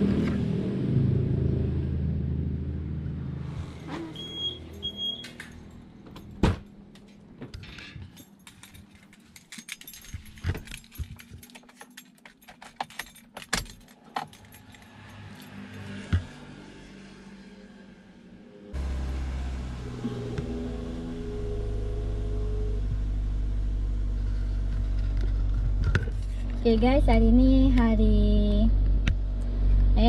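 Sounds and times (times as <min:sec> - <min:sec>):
car remote-locking beeps: 0:04.2 - 0:05.3
keys jangling: 0:08.0 - 0:16.0.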